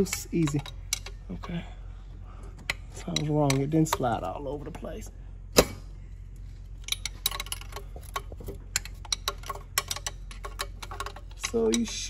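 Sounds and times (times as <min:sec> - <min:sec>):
wrench clicking on metal fitting: 0:00.0 - 0:01.2, 0:06.9 - 0:12.0.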